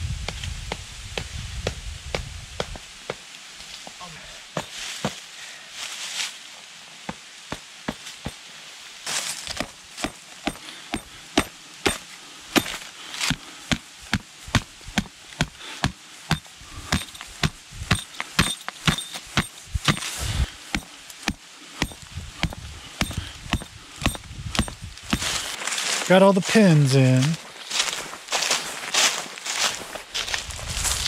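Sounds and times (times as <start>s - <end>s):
mallet striking tent pins: 9.6s - 25.3s.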